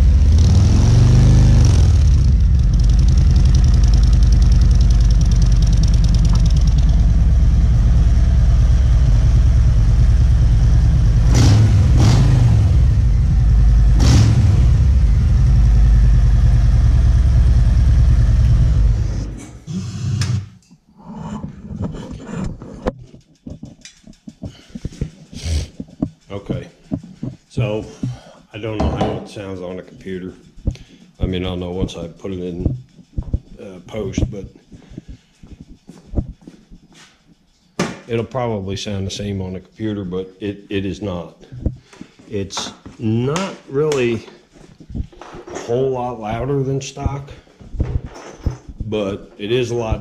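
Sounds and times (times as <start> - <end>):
motorcycle engine running: 0.0 - 19.4.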